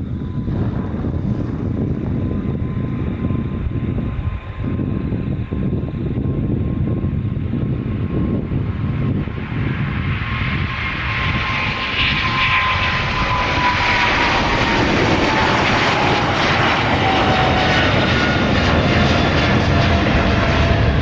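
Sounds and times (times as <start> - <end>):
jet engine whine: 0.0 - 21.0
jet engines roaring: 0.0 - 21.0.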